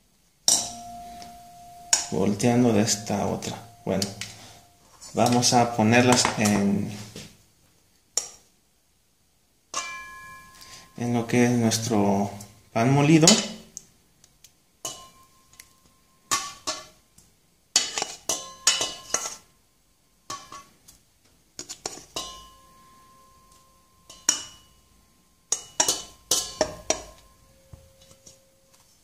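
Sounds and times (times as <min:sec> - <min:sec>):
metal tongs clinking against bowl: 0:00.5 - 0:04.6, 0:23.4 - 0:24.8, 0:25.5 - 0:28.4.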